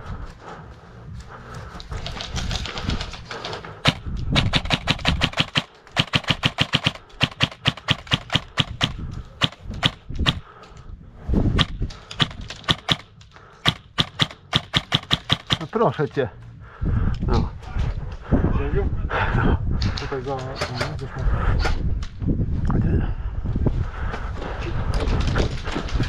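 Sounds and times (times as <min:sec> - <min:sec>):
airsoft guns firing rapidly: 0:03.8 - 0:10.4, 0:11.6 - 0:15.8.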